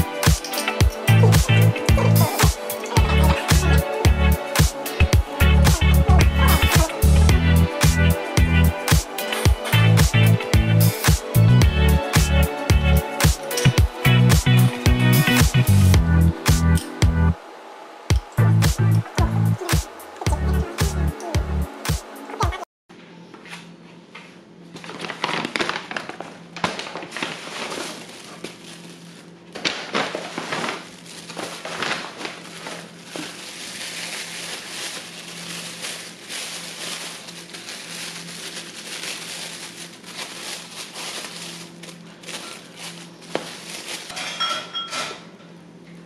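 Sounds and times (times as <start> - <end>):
plastic bags crinkling: 0.0 - 7.1, 24.7 - 44.4.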